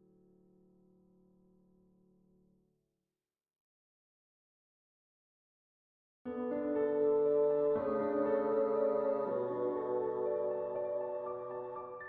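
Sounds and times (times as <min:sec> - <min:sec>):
calm ambient music: 0:06.3 - 0:12.0.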